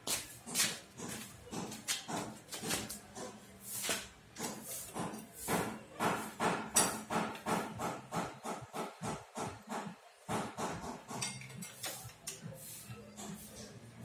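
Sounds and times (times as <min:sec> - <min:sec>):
hammer tapping on metal: 0:00.5 - 0:03.4, 0:04.4 - 0:12.4.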